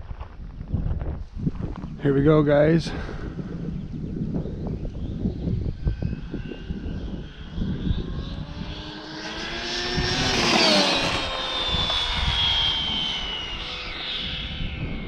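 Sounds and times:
rc car motor whine passing: 4.6 - 15.0.

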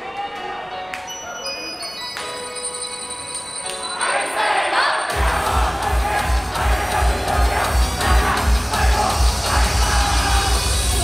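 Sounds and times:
crowd of fans chanting: 4.0 - 11.0
idol pop song: 4.0 - 11.0
steady kick-drum beat: 5.1 - 11.0.

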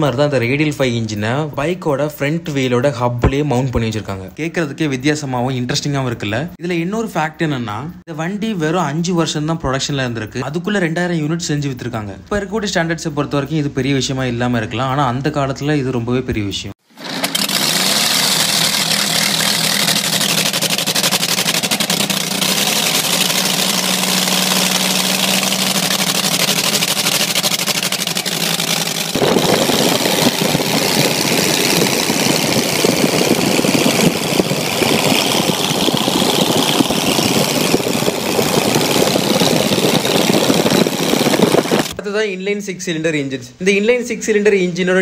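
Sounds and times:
motorcycle radial engine running: 16.8 - 42.0.

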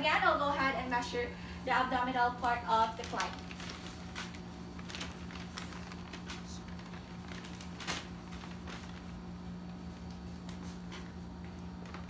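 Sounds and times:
steady low hum: 0.0 - 12.0
measuring tape rustling and clicking: 2.4 - 12.0.

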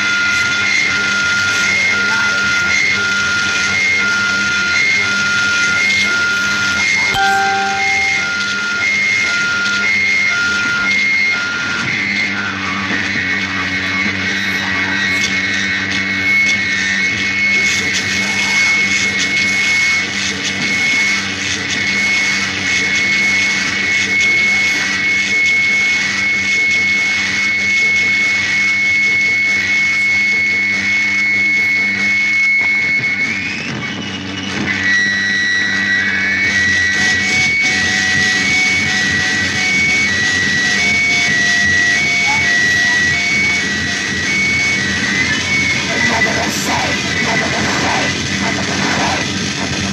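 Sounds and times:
high-pitched whine: 0.1 - 49.9
static and drone noise music: 11.4 - 49.9.

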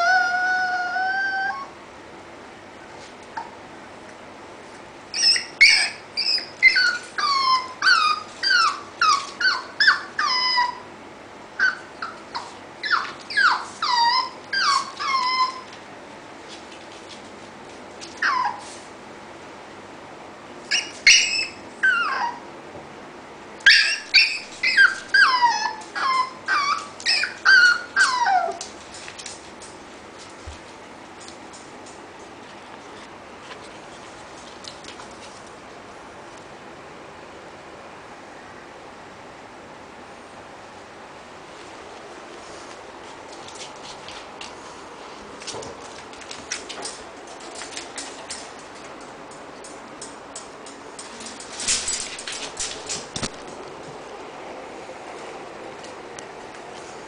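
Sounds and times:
puppy whining: 0.0 - 1.8, 5.1 - 10.9, 11.6 - 15.8, 18.0 - 18.9, 20.6 - 22.5, 23.6 - 29.4.

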